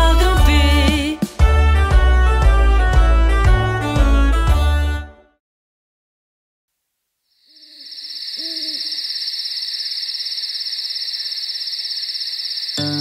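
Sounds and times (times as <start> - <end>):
crickets chirping: 7.2 - 13.0
owl hooting: 7.4 - 12.8.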